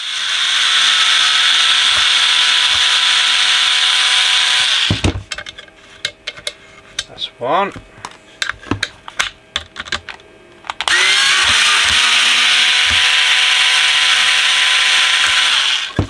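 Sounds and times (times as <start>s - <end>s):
cordless electric screwdriver running: 0.0s - 5.0s, 10.8s - 16.0s.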